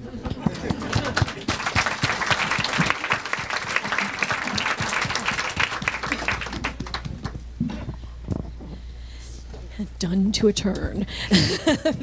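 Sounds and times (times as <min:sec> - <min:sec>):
audience applauding: 0:00.4 - 0:07.4.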